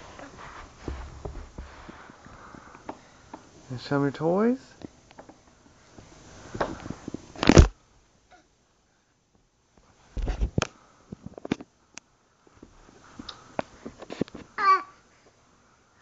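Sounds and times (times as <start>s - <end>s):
rustling: 0.0s - 3.6s.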